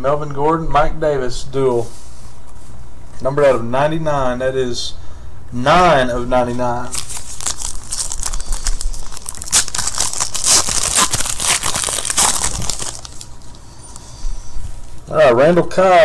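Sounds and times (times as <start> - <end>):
foil wrapper tearing and crinkling: 6.8 - 13.6.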